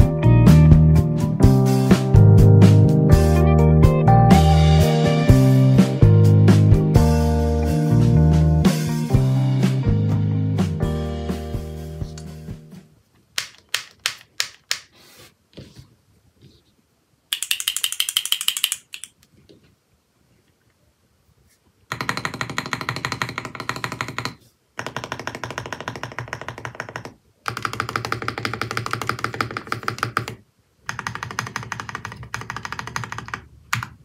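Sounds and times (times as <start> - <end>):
mechanical keyboard typing: 17.3 - 19.2, 21.9 - 34.0.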